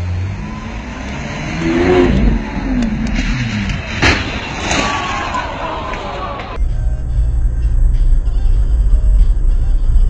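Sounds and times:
sports car engine revving: 0.0s - 4.0s
sharp crack: 1.0s - 6.6s.

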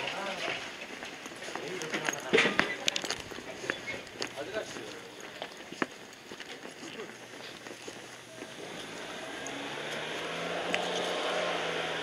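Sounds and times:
street ambience: 0.0s - 12.0s
approaching engine: 7.9s - 12.0s.

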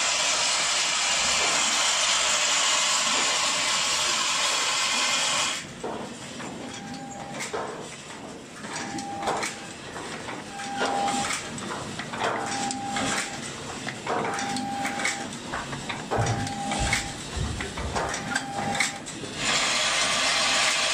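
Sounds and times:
machine clacking and knocking: 5.6s - 20.9s.

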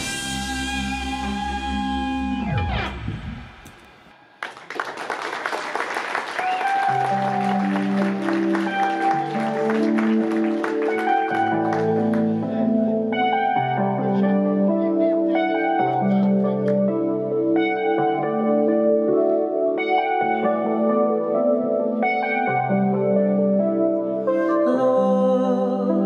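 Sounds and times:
audience applause: 4.4s - 12.3s
sustained keyboard chords: 6.7s - 26.0s.

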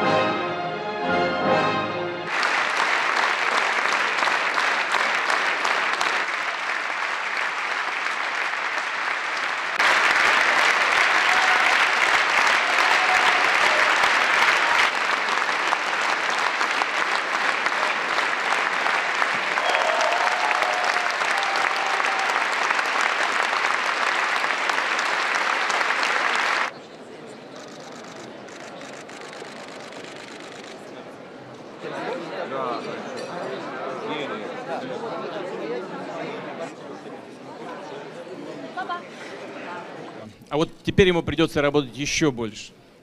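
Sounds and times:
audience applauding: 2.3s - 26.8s, 27.6s - 31.0s.

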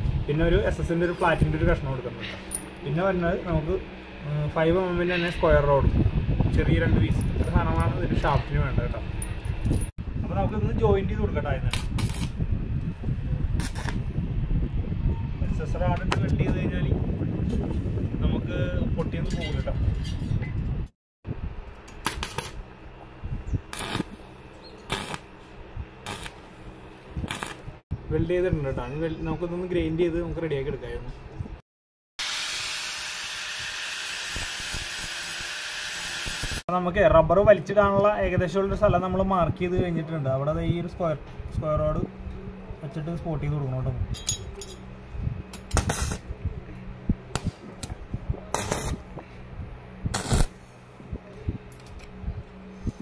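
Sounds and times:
steady low hum: 0.0s - 31.6s, 36.5s - 53.0s
welding arc crackling and sizzling: 11.7s - 12.4s, 13.6s - 14.1s, 21.8s - 22.7s, 23.7s - 24.2s, 24.8s - 25.4s, 26.0s - 27.8s, 32.2s - 36.6s, 45.6s - 46.3s, 47.3s - 49.2s, 50.1s - 50.6s
low steady hum: 37.2s - 53.0s.

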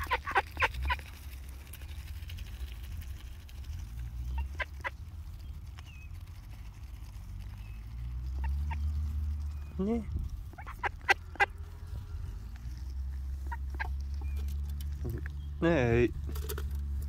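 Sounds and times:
duck bills clicking: 0.0s - 3.6s, 13.4s - 15.4s
steady low rumble: 0.0s - 17.0s.

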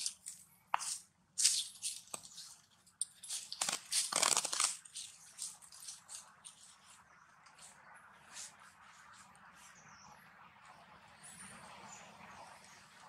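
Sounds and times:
dry leaves rustling: 0.0s - 7.1s.

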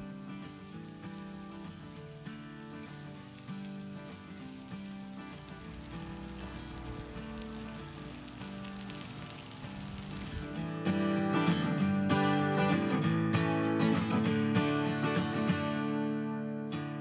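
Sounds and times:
steaks sizzling on griddle: 0.0s - 13.0s.

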